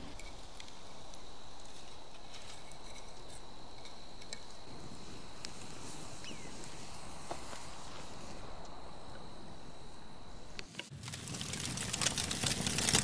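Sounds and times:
high insect drone: 0.0s - 11.0s
wood pieces clicking and knocking: 10.9s - 13.0s.

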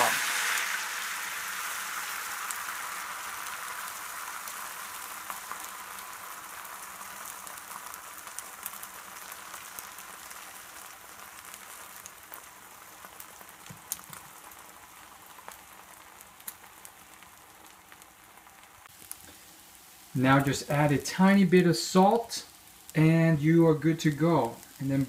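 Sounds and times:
egg sizzling in frying pan: 0.0s - 25.0s
small oil pops: 13.6s - 14.4s.

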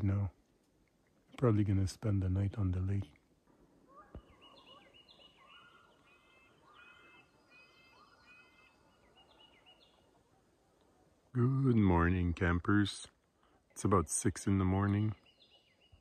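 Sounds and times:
distant geese honking: 3.8s - 10.4s.

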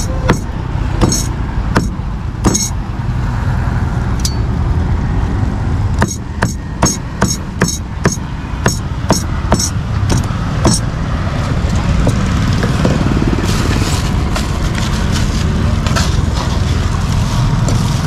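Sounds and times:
road traffic rumble: 0.0s - 18.0s
cleaver chopping on board: 0.3s - 2.7s, 6.0s - 10.8s.

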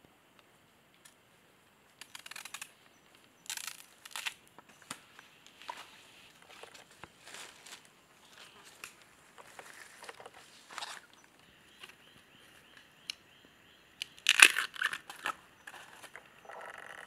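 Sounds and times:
crunching: 2.0s - 2.8s, 3.4s - 11.3s, 14.0s - 17.0s
dry leaves rustling and crackling: 3.5s - 11.2s.

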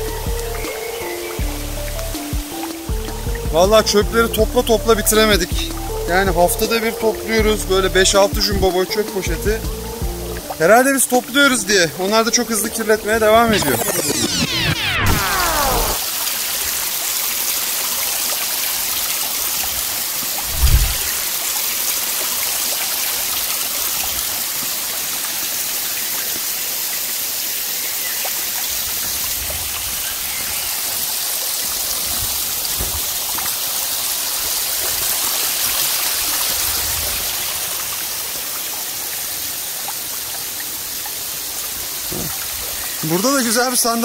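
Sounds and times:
stream flowing over rocks: 14.8s - 44.0s
low thump: 20.5s - 21.2s.

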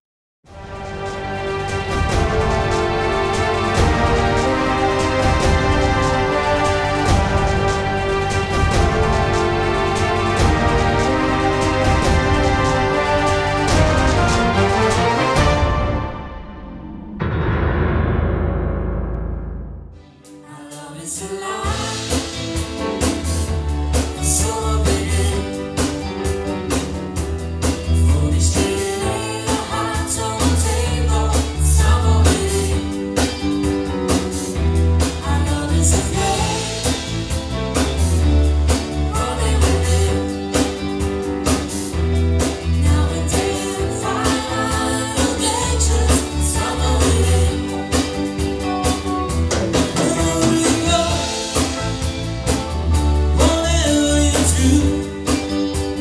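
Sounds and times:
live band playing: 0.5s - 19.2s, 20.0s - 56.0s
strong bass line: 0.5s - 20.0s
person singing: 20.3s - 23.4s, 24.0s - 26.1s, 27.8s - 33.4s, 35.1s - 38.2s, 39.0s - 41.0s, 42.7s - 52.0s, 53.2s - 56.0s.

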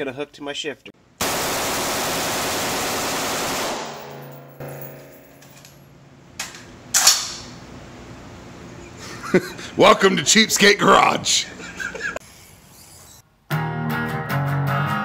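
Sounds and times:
rifle firing rapid shots: 1.2s - 4.2s.

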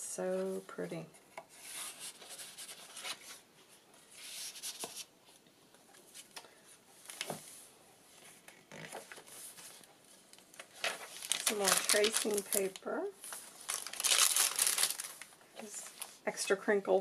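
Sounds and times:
paper and card rustling: 1.4s - 3.4s, 10.6s - 16.2s.

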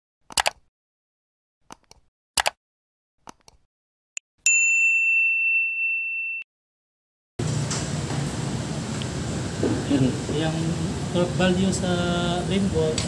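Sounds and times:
mouse clicks: 0.3s - 0.6s, 1.7s - 2.6s
notification bell ding: 4.5s - 6.4s.

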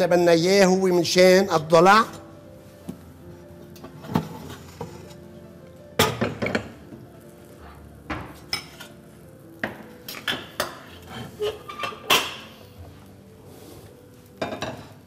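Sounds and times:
dishes knocking and clinking: 6.0s - 7.0s, 8.1s - 9.0s, 9.6s - 12.6s, 14.4s - 15.0s.

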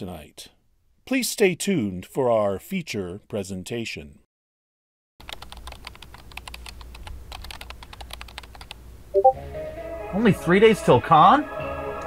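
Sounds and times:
rapid typing on laptop keyboard: 5.2s - 8.8s.

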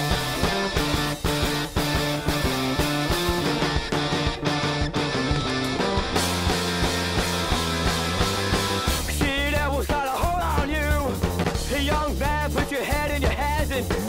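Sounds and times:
rock music: 0.0s - 14.0s
person singing: 8.8s - 14.0s.

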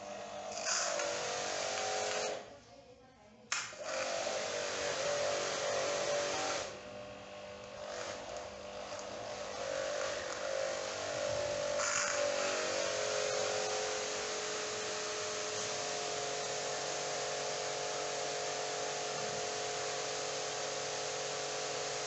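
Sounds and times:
pressure washer motor humming: 0.0s - 2.5s, 3.5s - 22.0s.

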